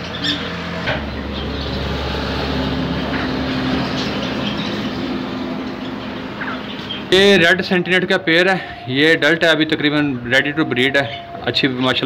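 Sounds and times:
bird chirps: 0.0 - 1.9, 3.2 - 7.2
engine-like drone: 0.0 - 12.0.

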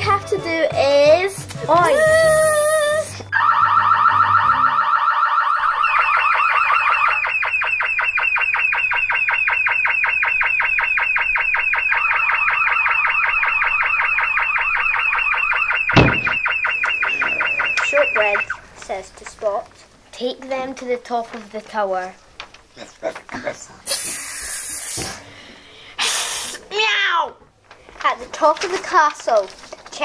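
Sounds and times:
pulsing electronic alarm: 3.3 - 18.8
thump: 15.9 - 16.4.

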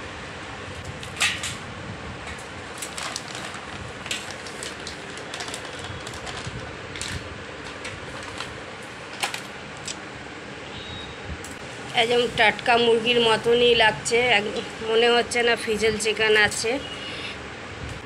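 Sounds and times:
plastic crinkling: 2.6 - 10.0
scissors cutting plastic packet: 2.8 - 7.2.

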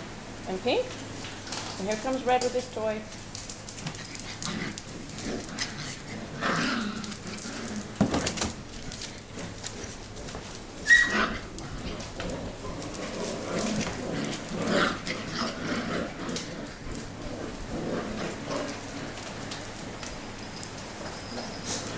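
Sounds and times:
puppies scuffling: 0.3 - 21.9
puppy whimpers: 10.8 - 11.5, 20.4 - 21.9.

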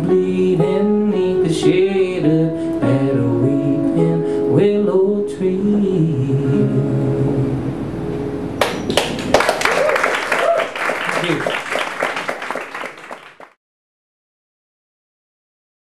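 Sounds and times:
applause and cheering: 8.6 - 13.6.

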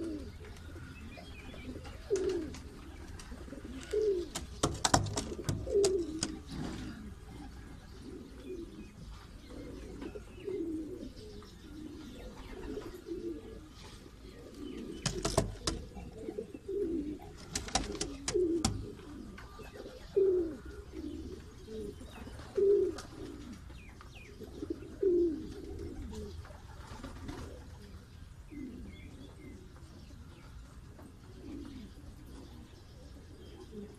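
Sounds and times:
pigeon cooing: 0.0 - 33.9
sharp clicks: 4.3 - 6.4, 15.0 - 15.9, 17.4 - 18.9.

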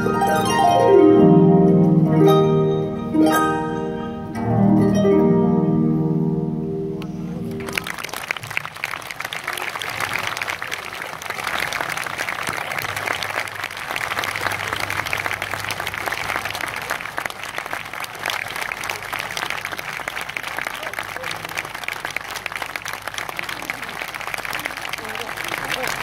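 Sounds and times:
harp chord: 0.0 - 7.8
audience applauding: 7.4 - 26.0.

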